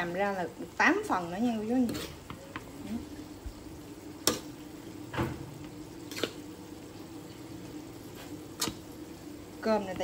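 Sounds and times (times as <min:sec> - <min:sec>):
metal spatula scraping a wok: 0:01.7 - 0:02.3.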